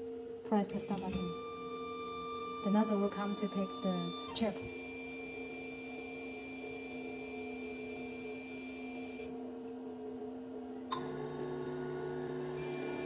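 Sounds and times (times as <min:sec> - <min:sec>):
machine humming: 0:00.0 - 0:13.0
high whine: 0:00.6 - 0:09.3.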